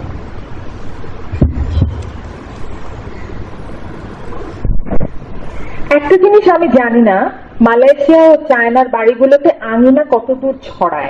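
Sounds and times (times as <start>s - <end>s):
microphone hiss and hum: 0.0s - 11.0s
soft low thumps: 1.3s - 2.2s.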